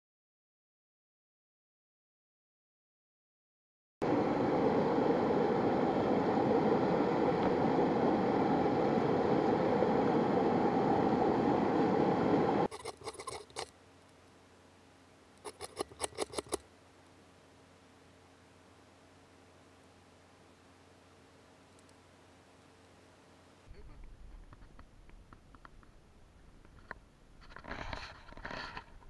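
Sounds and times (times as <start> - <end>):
knife scraping ferro rod: 12.7 - 13.7, 15.4 - 16.6.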